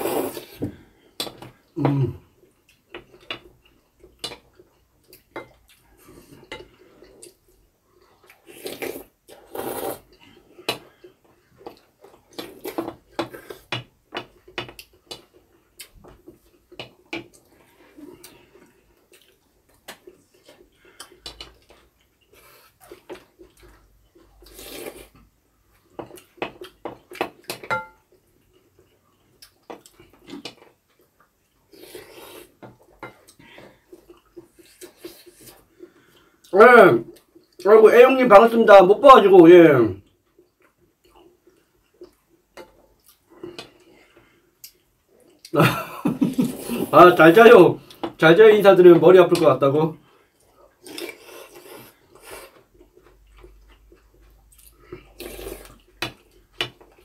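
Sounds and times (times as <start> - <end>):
loud slurping: 0.0 - 0.6, 8.5 - 10.1.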